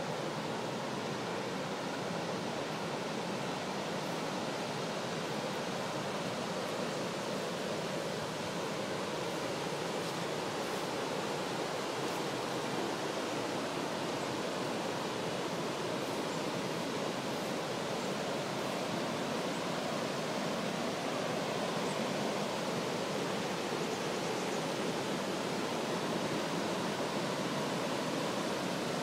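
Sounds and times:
water rushing over weir: 0:00.0 - 0:29.0.

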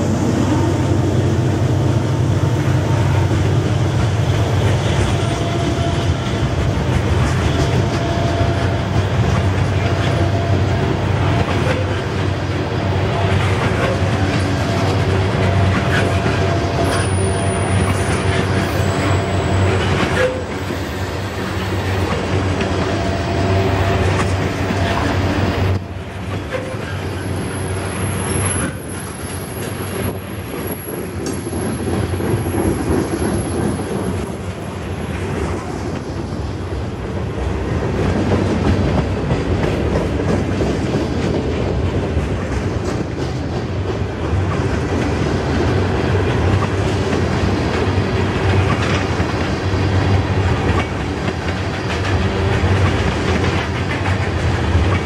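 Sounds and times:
freight train rumbling past: 0:00.0 - 0:55.0
wheels clattering over rail joints: 0:13.1 - 0:36.2
high wheel squeal: 0:15.6 - 0:22.0, 0:26.5 - 0:30.0.

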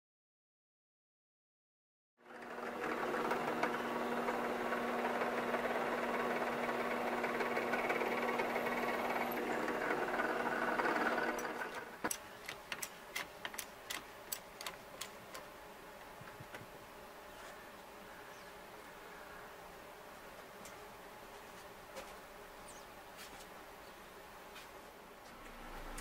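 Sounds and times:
drill press humming: 0:02.2 - 0:15.5, 0:25.3 - 0:26.0
sharp clicks: 0:11.3 - 0:15.5.

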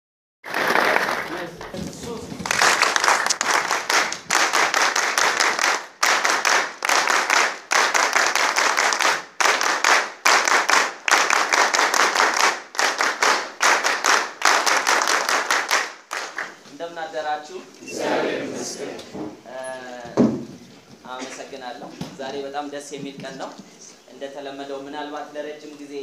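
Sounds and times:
audience clapping: 0:00.4 - 0:16.7.

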